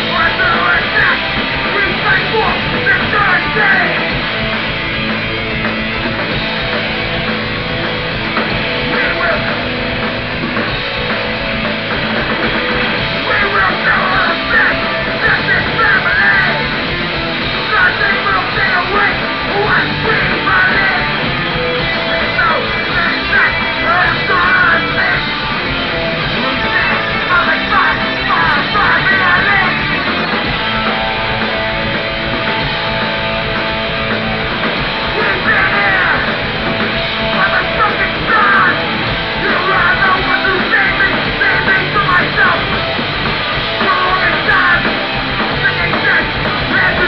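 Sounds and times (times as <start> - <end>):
shouted vocals: 0.0 - 4.2, 8.8 - 9.6, 13.1 - 25.6, 26.2 - 31.6, 34.9 - 43.0, 43.7 - 47.0
punk band playing: 0.0 - 47.0.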